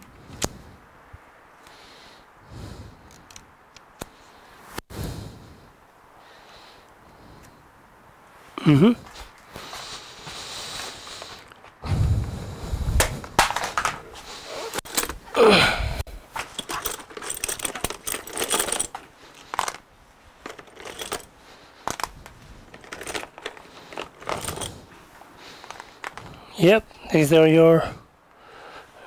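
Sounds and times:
plastic clothes pegs clicking: 16.4 - 19.8, 20.4 - 24.8.

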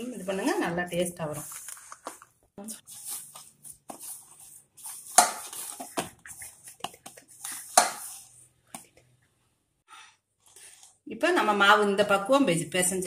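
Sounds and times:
hands kneading dough in bowl: 2.8 - 9.2.

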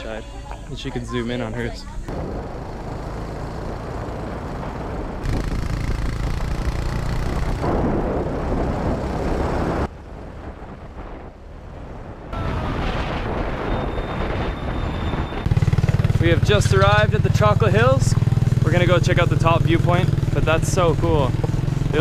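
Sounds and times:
small motorcycle riding: 1.7 - 10.3, 14.1 - 22.0
wind buffeting microphone: 7.4 - 16.8.

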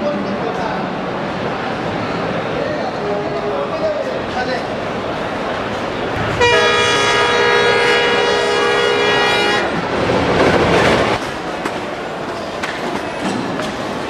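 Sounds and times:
train horn blast: 6.4 - 9.8.

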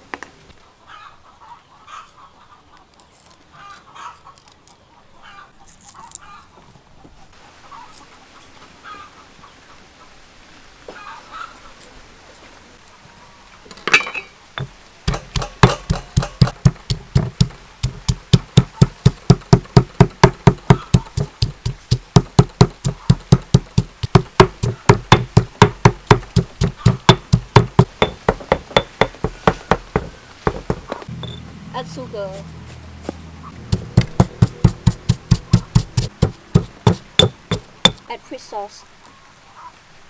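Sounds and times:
stone pestle pounding in mortar: 14.6 - 30.9, 33.7 - 38.0.

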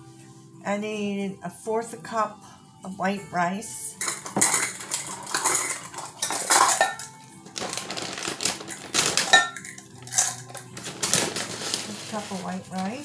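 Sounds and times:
kitchenware clattering: 4.0 - 13.0.

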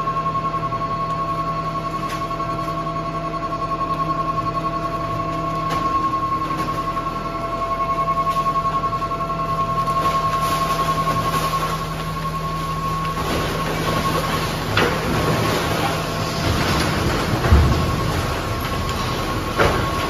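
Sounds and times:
garbage truck whining: 0.0 - 20.0
garbage rustling and thudding: 5.4 - 20.0.

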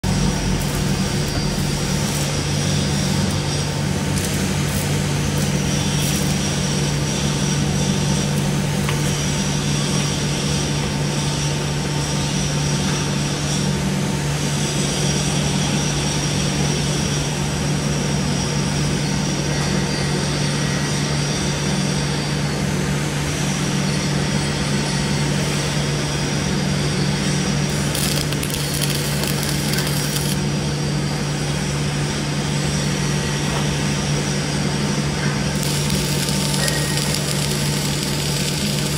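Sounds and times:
welding crackles: 0.0 - 9.3, 27.7 - 30.4, 35.5 - 38.9
welding arc hissing: 0.0 - 9.6, 27.7 - 30.4, 35.5 - 38.9.

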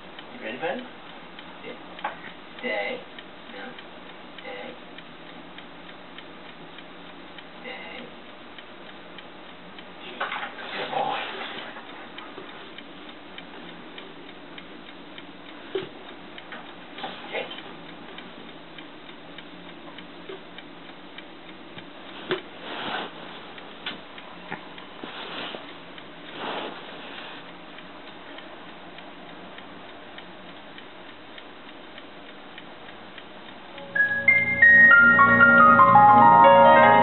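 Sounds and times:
piano music: 33.8 - 37.0.

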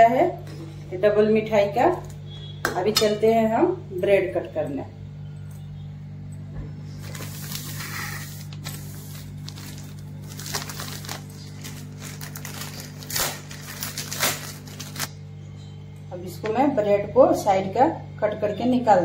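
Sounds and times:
steady low hum: 0.0 - 19.0
plastic wrapper crinkling: 7.0 - 15.1.

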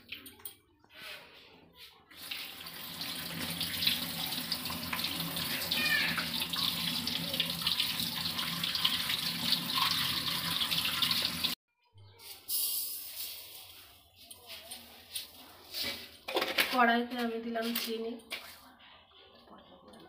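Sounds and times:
tap water running into colander: 2.2 - 11.6.

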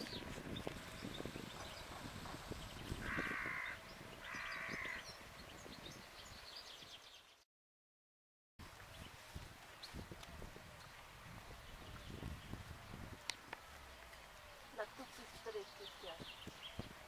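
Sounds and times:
harsh cawing bird calls: 2.9 - 5.2.

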